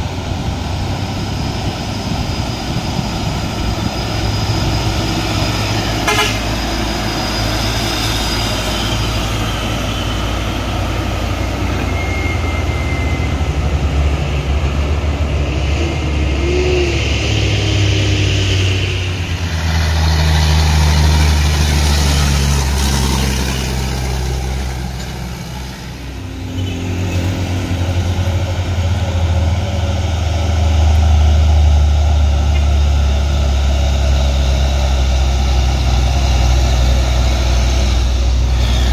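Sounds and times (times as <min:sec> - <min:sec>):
truck diesel engines climbing: 0:00.0 - 0:38.9.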